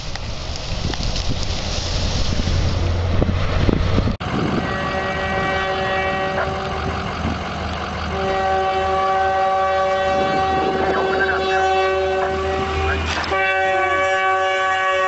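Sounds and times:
train ploughing through snow: 0:00.0 - 0:15.0
train air horn blasts: 0:04.4 - 0:07.0, 0:08.1 - 0:15.0.

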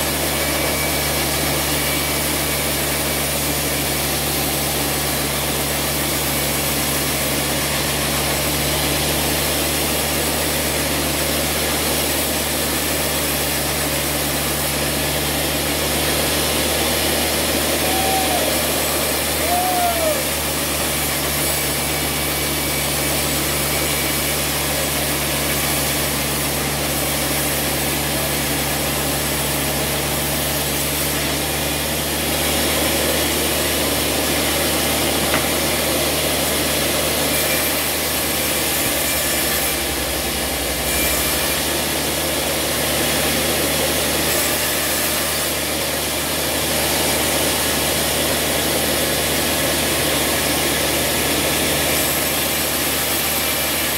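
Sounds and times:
band saw cutting wood: 0:00.0 - 0:53.9.

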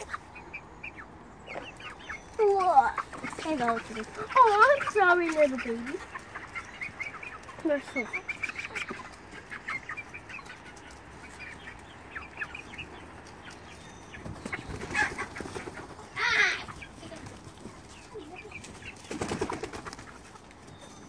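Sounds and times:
chicken squawk: 0:00.0 - 0:20.4
chickens clucking: 0:00.0 - 0:21.0
wings flapping: 0:14.2 - 0:20.7.

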